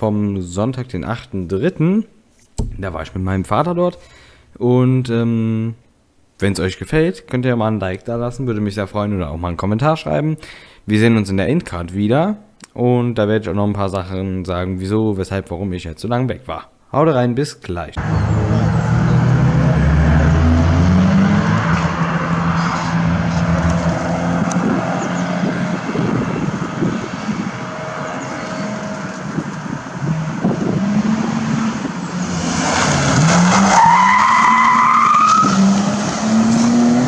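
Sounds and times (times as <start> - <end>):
rally car engines revving: 18.0 - 37.0.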